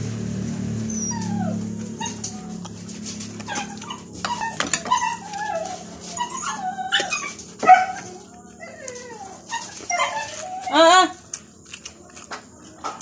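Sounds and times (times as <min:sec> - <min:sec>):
wet chewing and lip-smacking: 0:01.6 - 0:04.2, 0:11.3 - 0:13.0.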